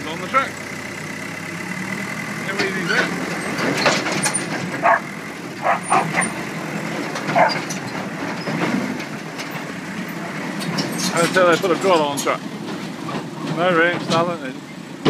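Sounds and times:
diesel engine running: 0.0 - 15.0
dog barking: 4.8 - 6.4, 7.3 - 7.6.

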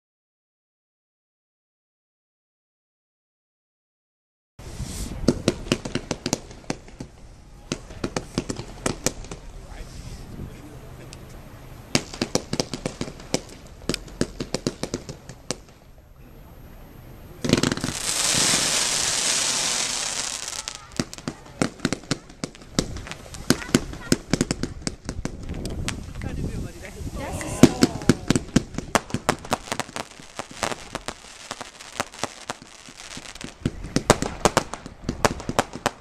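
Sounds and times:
loud rushing hiss: 4.6 - 11.0, 17.5 - 25.4
firework crackling pops: 4.8 - 9.9, 11.9 - 15.9, 17.4 - 36.0.

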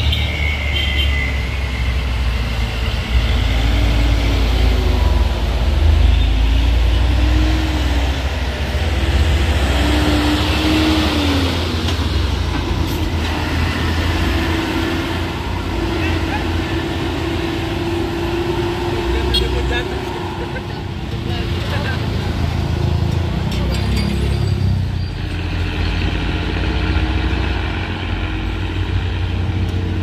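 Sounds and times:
truck diesel engine rumbling: 0.0 - 30.0.

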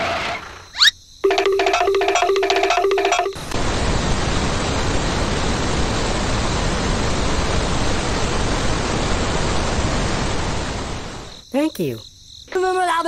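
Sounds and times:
loud steady hiss: 3.5 - 11.6.

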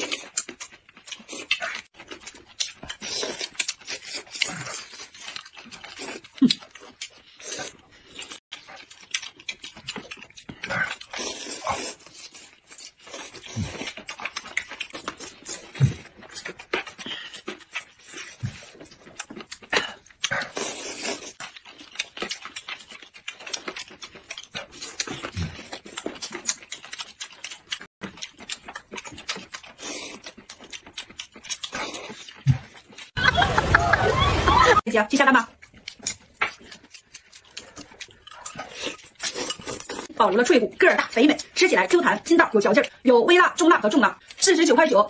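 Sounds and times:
wet chewing: 0.0 - 33.8, 34.6 - 45.0
slurping noodles: 2.9 - 8.4, 10.6 - 21.4, 29.6 - 30.9.

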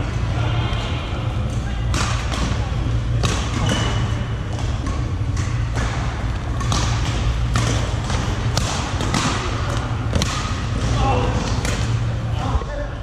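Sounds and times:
steady low hum: 0.0 - 13.0
racket striking shuttlecock: 1.8 - 12.0.

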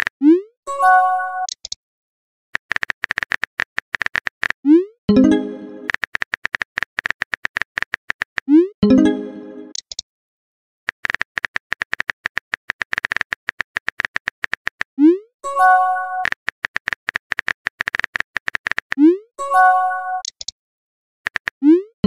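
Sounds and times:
phone keyboard typing clicks: 2.6 - 4.6, 5.6 - 8.5, 10.9 - 14.9, 16.2 - 19.0, 20.2 - 20.6, 21.3 - 21.7.

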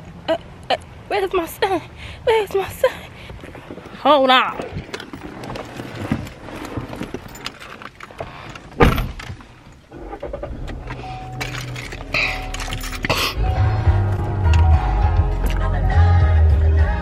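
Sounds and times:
loud thud: 8.8 - 9.2
low steady hum: 8.9 - 16.4
keys jangling: 10.7 - 13.4
music: 12.8 - 17.0.

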